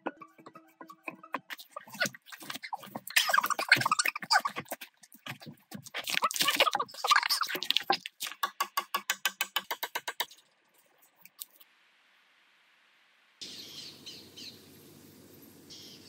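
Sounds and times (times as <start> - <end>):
small birds chirping: 0.2 - 5.4, 13.4 - 14.8, 15.7 - 16.0
fast sharp clicks: 6.1 - 10.4
steady outdoor hiss: 10.0 - 16.0.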